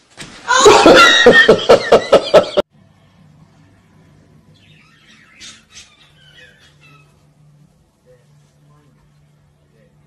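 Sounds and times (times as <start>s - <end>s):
person laughing hard: 0.6s - 2.6s
faint low hum: 2.7s - 10.0s
budgerigars chirping: 4.6s - 7.2s.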